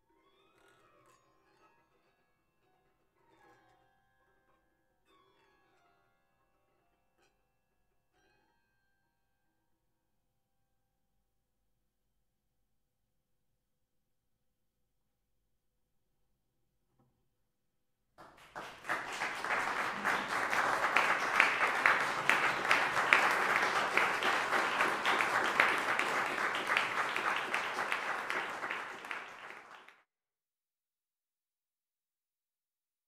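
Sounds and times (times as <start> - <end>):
audience applauding: 18.2 - 30.0.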